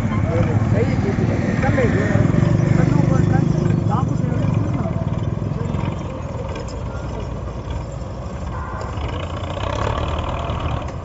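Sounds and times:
people's voices: 0.0s - 9.4s
tractor diesel engines under load: 0.0s - 11.0s.

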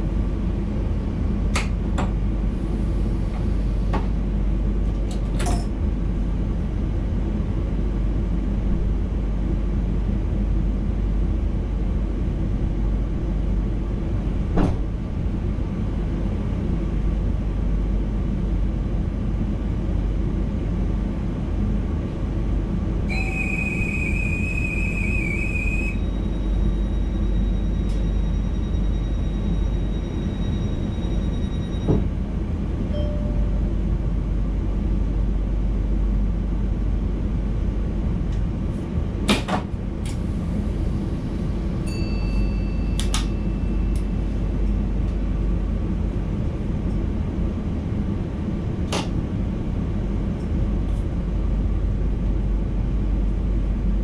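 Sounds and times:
electric train rumbling: 0.0s - 54.0s
high steady tone: 23.1s - 31.8s.

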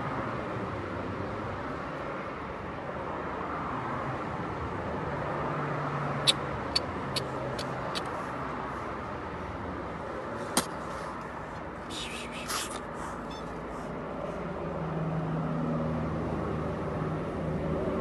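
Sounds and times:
traffic noise: 0.0s - 18.0s.

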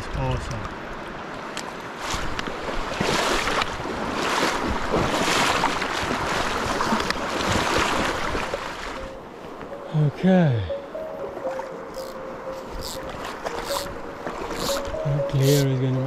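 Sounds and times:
water splashing and swishing: 0.4s - 16.0s
short sharp splashes: 2.8s - 9.0s.

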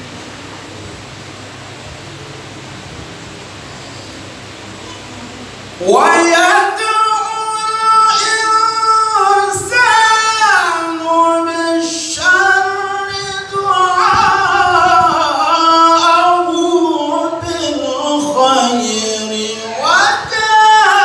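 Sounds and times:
man reciting melodically: 5.8s - 21.0s.

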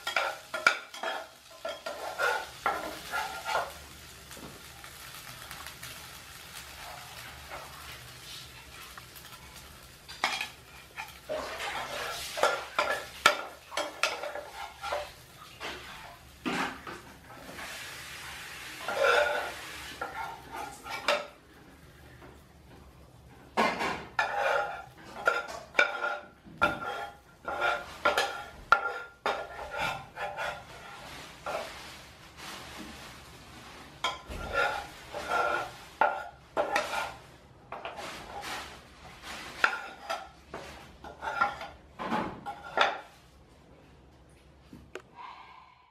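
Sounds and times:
metal utensil scraping a pan: 0.0s - 4.0s, 10.1s - 21.4s, 23.5s - 32.0s, 33.9s - 43.2s
faint sizzle: 0.0s - 45.9s.

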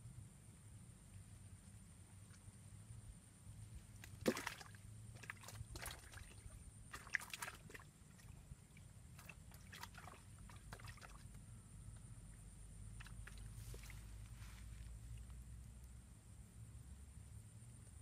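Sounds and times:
small water splashes and sloshing: 2.0s - 2.8s, 3.6s - 11.6s, 12.3s - 15.8s.

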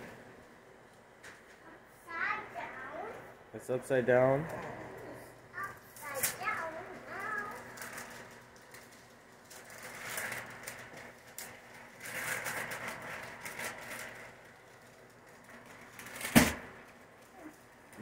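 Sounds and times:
wrapping paper rustling: 5.8s - 17.7s.

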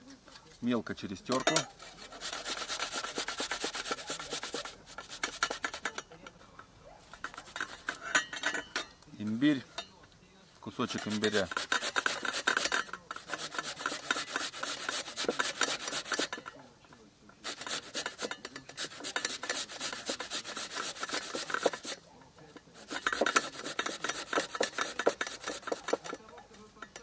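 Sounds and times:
ginger rasping on grater: 1.5s - 6.0s, 7.1s - 8.8s, 10.7s - 16.5s, 17.4s - 26.3s.

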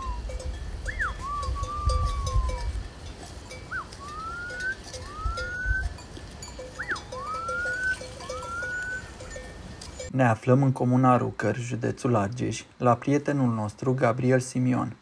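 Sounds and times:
person whistling: 0.0s - 2.7s, 3.7s - 5.9s, 6.8s - 9.1s
sheep bells tinkling: 0.0s - 10.2s.

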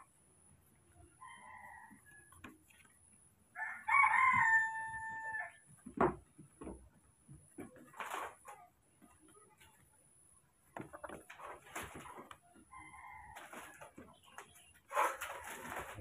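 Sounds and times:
rooster crowing: 1.2s - 2.4s, 3.6s - 5.6s.

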